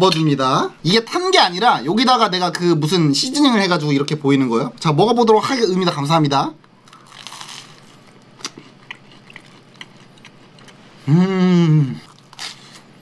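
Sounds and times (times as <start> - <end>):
chewing with soft crunches: 6.6 - 11.1, 12.0 - 12.9
person humming mmm: 11.0 - 12.2.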